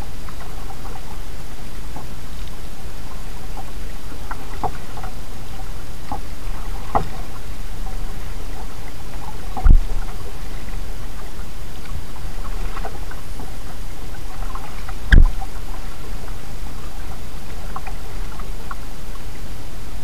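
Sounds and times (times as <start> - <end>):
low rumble: 0.0 - 20.0
water dripping on hull: 1.9 - 19.3
dull knock on kayak: 6.8 - 7.2, 9.5 - 10.1.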